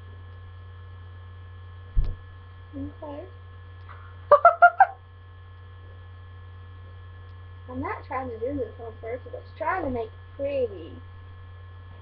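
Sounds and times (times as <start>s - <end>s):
electrical mains hum: 0.0s - 12.0s
thump: 2.0s - 2.2s.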